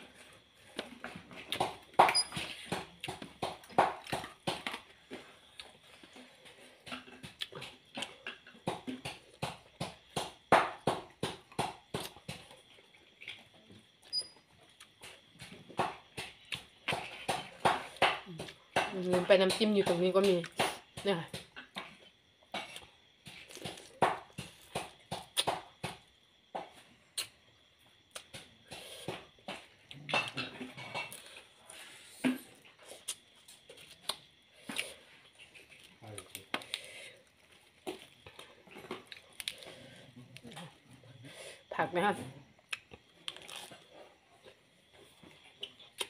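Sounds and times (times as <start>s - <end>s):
person chewing with wet smacks: 0.2s - 9.8s, 31.3s - 41.0s, 42.5s - 46.0s.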